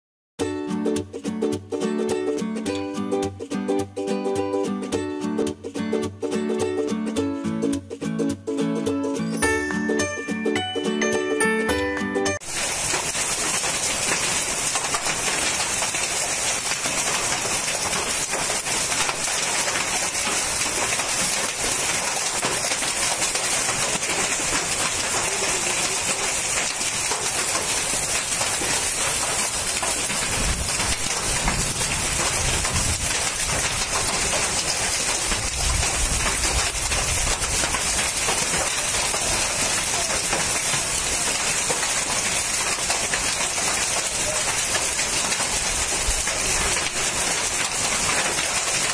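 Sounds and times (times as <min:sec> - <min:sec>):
hail and heavy rain pelting: 0:09.4 - 0:48.9.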